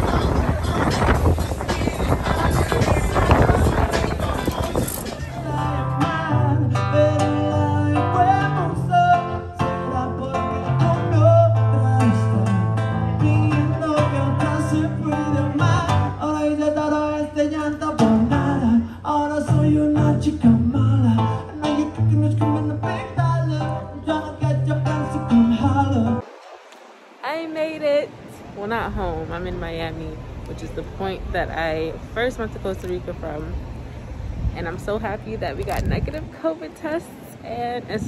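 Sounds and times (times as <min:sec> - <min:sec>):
acoustic guitar: 0:00.0 - 0:26.2
person singing: 0:00.0 - 0:26.2.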